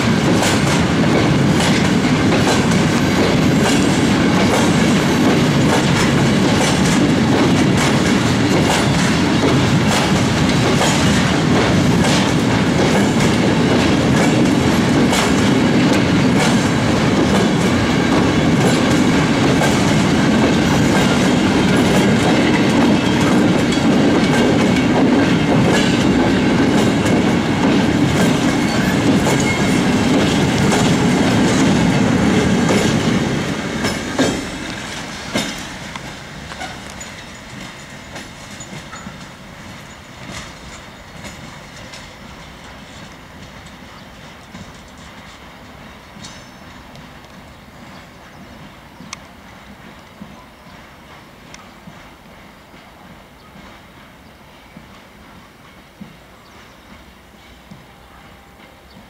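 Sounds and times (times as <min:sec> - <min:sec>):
train wheels clacking over rail joints: 0:00.0 - 0:59.0.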